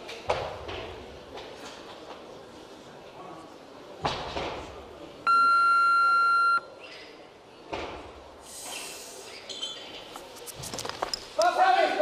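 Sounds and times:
steady electronic beep: 0:05.3 - 0:06.6.

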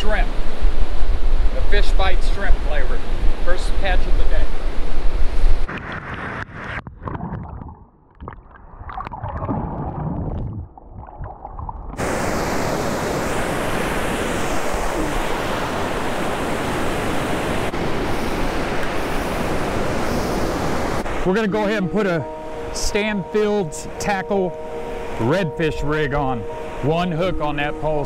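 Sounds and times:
muffled water sloshing: 0:06.8 - 0:12.7.

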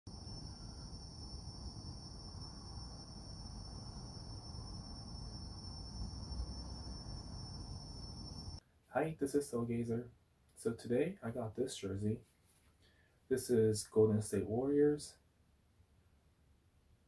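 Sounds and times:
insects trilling: 0:00.1 - 0:08.6.

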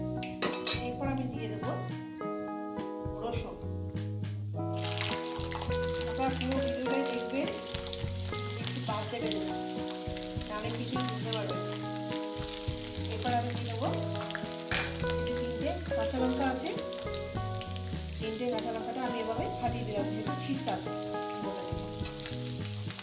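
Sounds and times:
instrumental music: 0:00.0 - 0:23.0
oil sizzling in a wok: 0:04.6 - 0:23.0.

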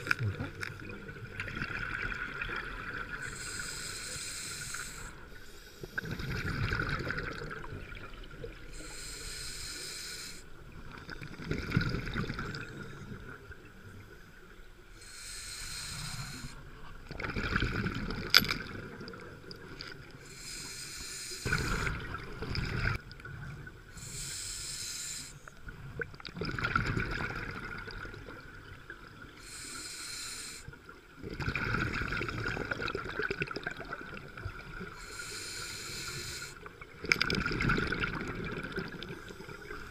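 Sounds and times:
exhaled bubbles gurgling: 0:00.0 - 0:09.4, 0:10.6 - 0:13.8, 0:15.8 - 0:20.5, 0:21.4 - 0:24.2, 0:25.5 - 0:29.6, 0:30.7 - 0:39.9
diver breathing through regulator: 0:03.2 - 0:06.3, 0:08.7 - 0:10.5, 0:15.0 - 0:16.6, 0:20.2 - 0:22.1, 0:23.9 - 0:25.5, 0:29.4 - 0:30.7, 0:34.9 - 0:36.7.

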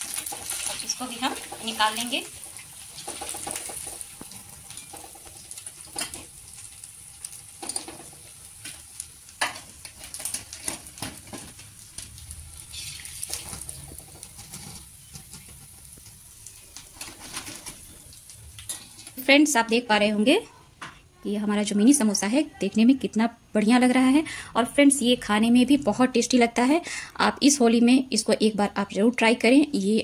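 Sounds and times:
hot oil sizzling: 0:00.0 - 0:20.3.

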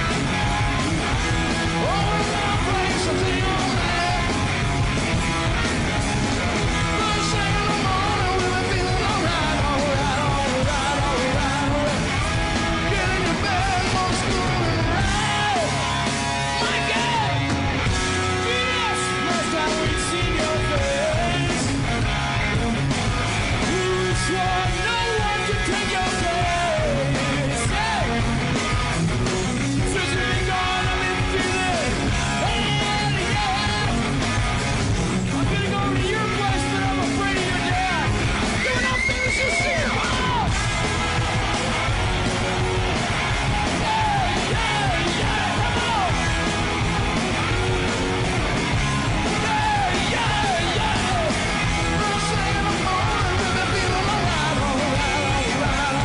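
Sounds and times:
hard rock band playing: 0:00.0 - 0:56.0
man singing and shouting: 0:00.8 - 0:04.5, 0:06.6 - 0:17.6, 0:18.3 - 0:22.0, 0:23.6 - 0:28.3, 0:29.6 - 0:34.1, 0:35.2 - 0:40.5, 0:43.6 - 0:46.3, 0:49.2 - 0:56.0.

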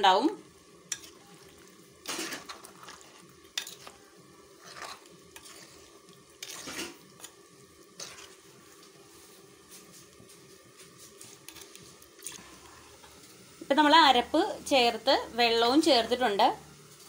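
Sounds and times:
spoon scraping a pot: 0:00.9 - 0:01.4, 0:02.0 - 0:08.4, 0:11.3 - 0:13.0.

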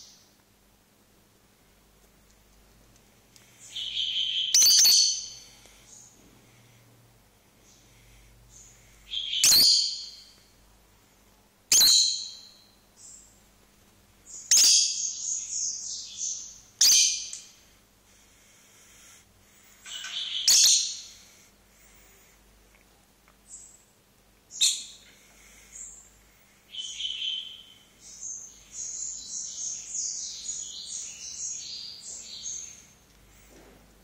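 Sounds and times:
lovebirds shrieking and chattering: 0:03.6 - 0:06.0, 0:08.5 - 0:10.3, 0:14.3 - 0:22.3, 0:24.5 - 0:33.0.

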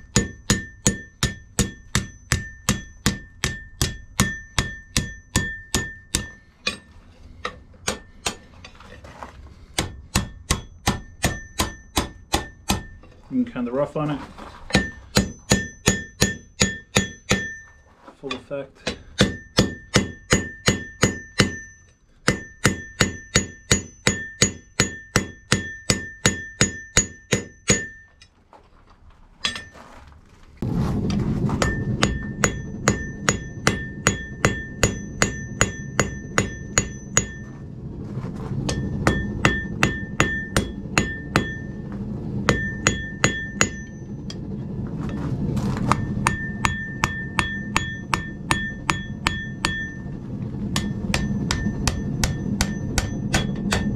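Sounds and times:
hammer striking steel on anvil: 0:00.0 - 0:08.5, 0:09.8 - 0:13.2, 0:14.7 - 0:28.3, 0:29.4 - 0:29.7, 0:31.6 - 0:37.6, 0:38.7 - 0:41.9, 0:42.5 - 0:44.4, 0:45.9 - 0:50.2, 0:50.8 - 0:53.9
high anvil ring: 0:00.0 - 0:08.9, 0:09.8 - 0:13.2, 0:14.7 - 0:28.3, 0:29.4 - 0:29.8, 0:31.6 - 0:37.7, 0:38.7 - 0:41.9, 0:42.5 - 0:44.5, 0:45.9 - 0:50.2, 0:50.8 - 0:53.9
steady low rushing noise: 0:30.6 - 0:53.9.

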